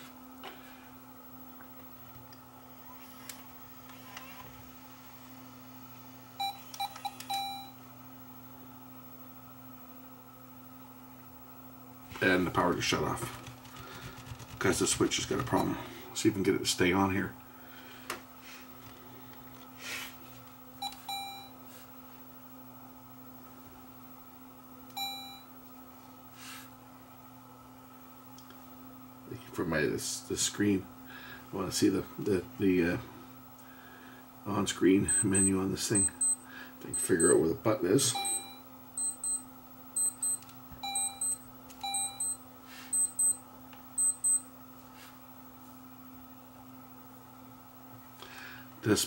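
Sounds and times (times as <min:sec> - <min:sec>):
camcorder electronic beeps: 0:06.4 - 0:07.8, 0:20.8 - 0:21.5, 0:25.0 - 0:25.4, 0:35.1 - 0:36.4, 0:38.1 - 0:39.4, 0:40.0 - 0:43.4, 0:44.0 - 0:44.4.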